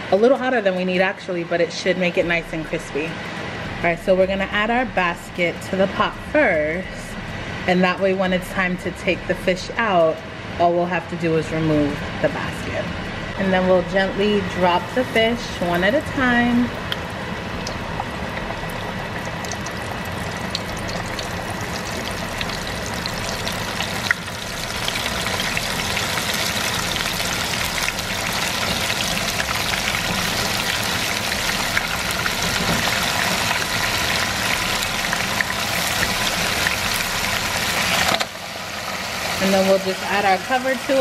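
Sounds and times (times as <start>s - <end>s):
fish deep-frying in sizzling oil: 14.6s - 41.0s.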